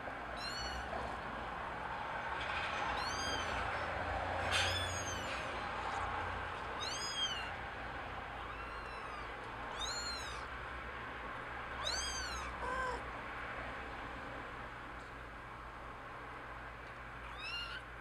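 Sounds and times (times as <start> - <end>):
kitten mewing: 0.4 - 1.2, 2.9 - 3.8, 4.6 - 5.4, 6.8 - 7.6, 8.4 - 10.5, 11.8 - 13.1, 17.2 - 17.9.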